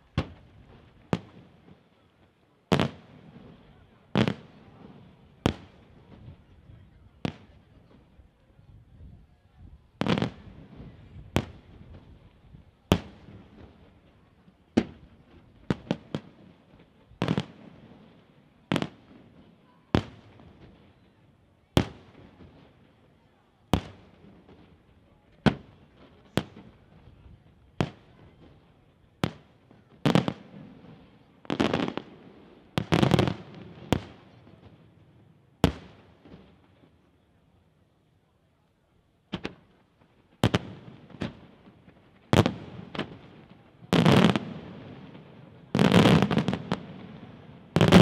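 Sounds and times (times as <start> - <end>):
firework crackling: 30.0 - 34.6, 40.3 - 48.0.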